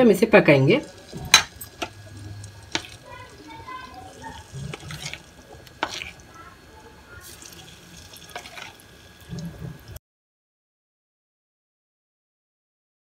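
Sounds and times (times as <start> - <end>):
oil sizzling softly: 0.1 - 10.0.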